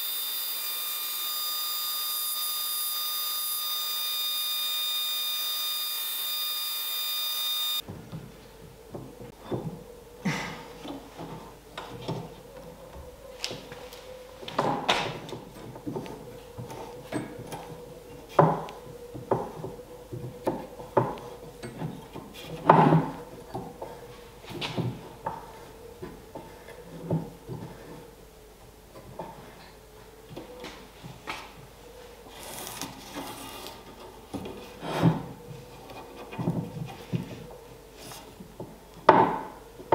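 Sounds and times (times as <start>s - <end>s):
wooden knocks and clicks: 14.5s - 27.7s.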